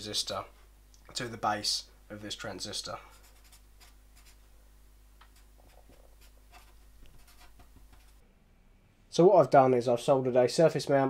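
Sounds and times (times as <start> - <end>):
pen scratching on paper: 3.1 - 4.4, 5.3 - 8.2.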